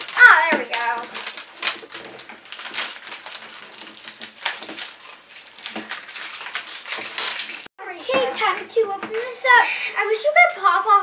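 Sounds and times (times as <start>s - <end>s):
plastic wrapping crinkling: 0.0s - 7.7s.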